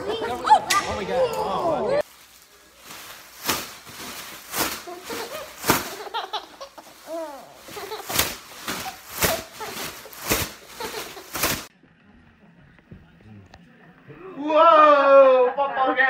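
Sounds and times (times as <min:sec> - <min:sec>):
baby laughing and squealing: 0:04.8 - 0:11.7.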